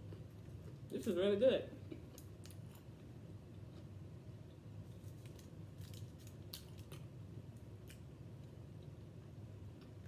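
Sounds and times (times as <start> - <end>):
low steady hum: 0.0 - 10.0
crispy chicken being chewed: 4.5 - 9.0.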